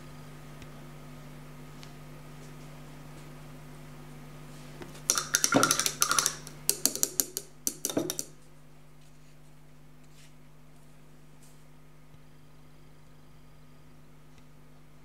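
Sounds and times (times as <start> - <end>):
faint steady hum: 0.0 - 15.0
clicks taps and rustles on desk: 5.1 - 8.4.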